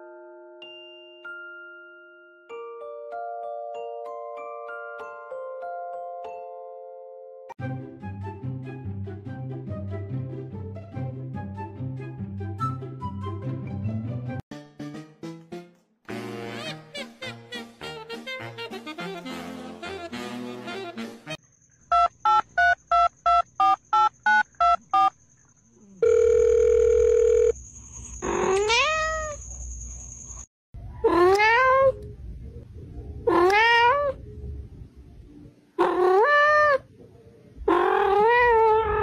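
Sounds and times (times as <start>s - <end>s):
cat meowing: 28.3s - 29.4s, 31.0s - 32.0s, 33.3s - 34.2s, 35.8s - 36.8s, 37.7s - 39.0s.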